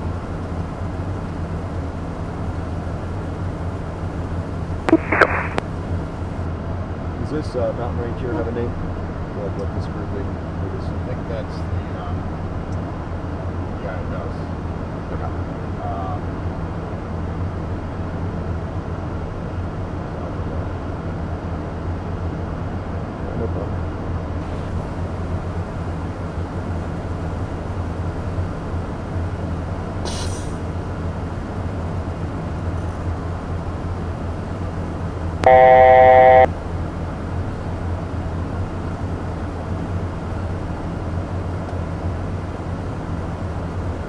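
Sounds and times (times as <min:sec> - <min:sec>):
low hum: 0:00.0 - 0:06.5, 0:35.2 - 0:37.7
jet cockpit drone: 0:04.8 - 0:06.4, 0:35.4 - 0:36.5
loud electronic tone: 0:04.9 - 0:05.6, 0:35.4 - 0:36.5.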